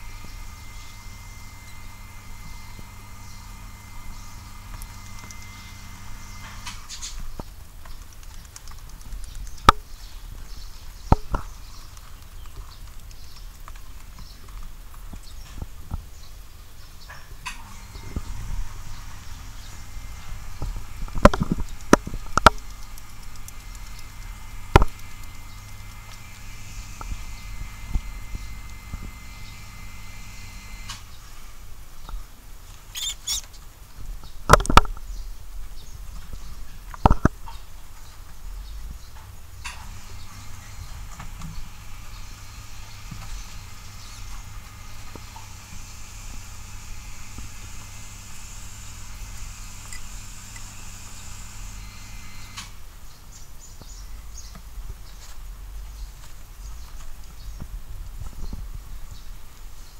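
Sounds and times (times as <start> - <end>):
low hum: 0.0 - 7.6, 17.4 - 31.8, 39.6 - 52.9
rats scratching in bedding: 0.0 - 10.8, 17.7 - 31.4, 32.9 - 33.6, 39.9 - 52.6
rat squeaks: 32.9 - 33.6.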